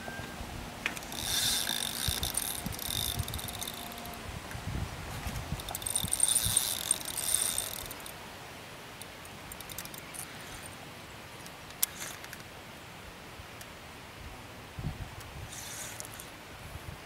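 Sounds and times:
light reel clicks: 0.8 - 4.2, 5.3 - 8.2, 9.0 - 10.8, 11.4 - 12.5, 15.2 - 16.4
fishing reel whirring: 0.9 - 4.2, 5.2 - 8.2, 9.5 - 10.8, 15.5 - 16.3.

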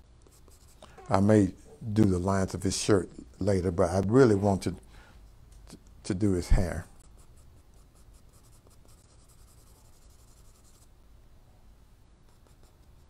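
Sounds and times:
pencil scratching on paper: 0.2 - 0.8, 7.0 - 10.9, 12.3 - 13.0.

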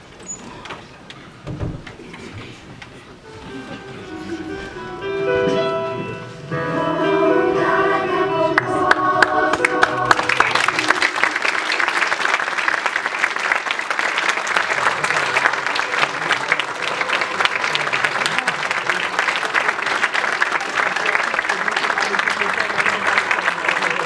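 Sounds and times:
music with long sung notes: 3.3 - 11.5
audience applauding: 8.6 - 24.0.

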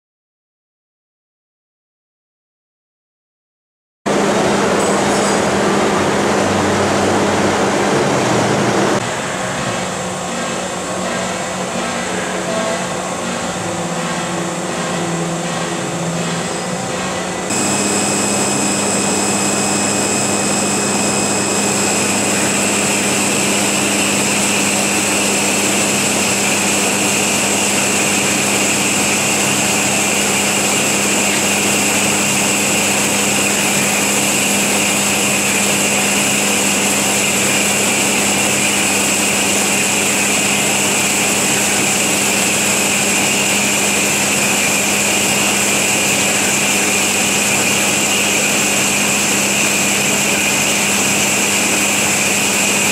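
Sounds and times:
band saw cutting metal: 15.6 - 52.9.

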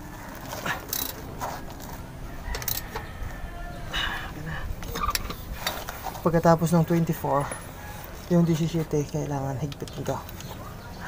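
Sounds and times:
wrench clicking and scraping: 0.3 - 3.1.

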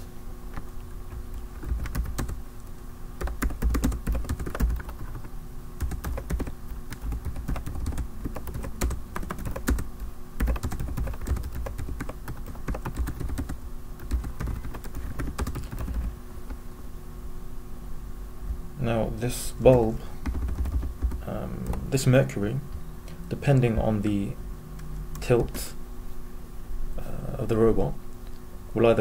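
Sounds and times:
faint steady hum: 0.0 - 29.0
typing on computer keyboard: 0.6 - 2.4, 3.2 - 5.2, 5.8 - 16.1, 20.2 - 21.8.

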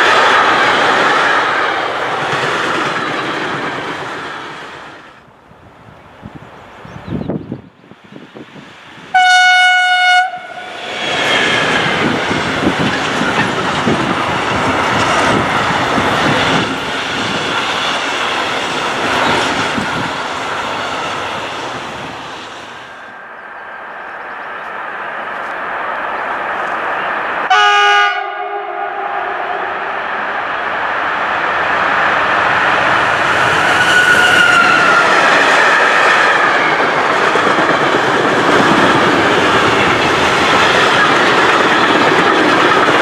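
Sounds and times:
freight train passing: 0.0 - 43.0
locomotive horn blast: 9.1 - 10.7, 27.5 - 29.9
low multi-tone locomotive horn: 9.1 - 10.7, 27.5 - 30.0.

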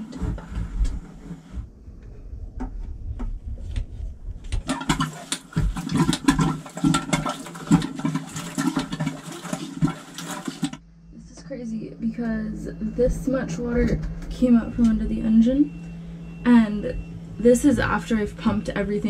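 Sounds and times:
water splashing into plastic bucket: 4.6 - 10.8.

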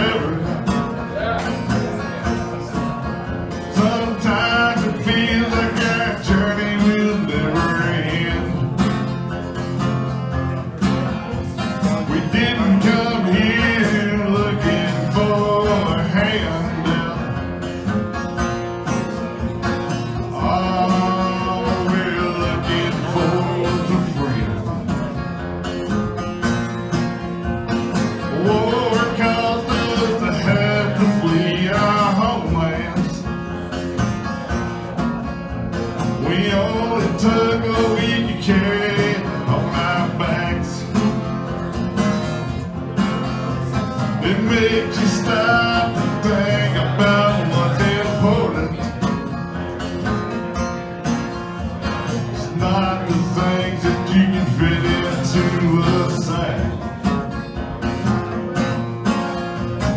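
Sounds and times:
man singing: 0.0 - 9.8, 10.5 - 17.7, 20.0 - 25.3, 28.0 - 33.9, 35.8 - 41.8, 43.3 - 49.4, 51.7 - 57.4
strummed acoustic guitar: 0.0 - 59.9.

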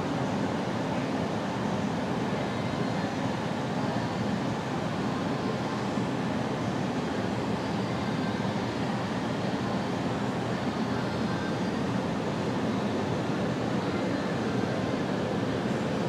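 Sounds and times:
steady rushing noise: 5.9 - 16.0.

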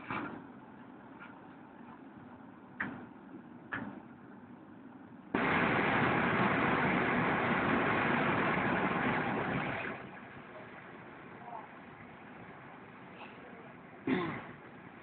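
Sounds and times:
low steady rumble: 4.2 - 15.0
spray lashing window: 5.4 - 10.0
wave breaking over bow: 5.4 - 10.1.

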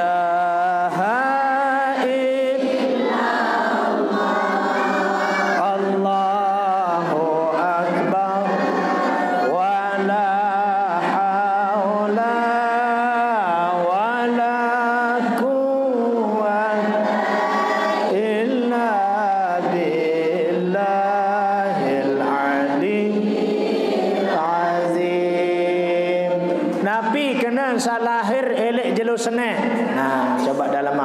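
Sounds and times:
man chanting melodic praise: 24.6 - 31.0.

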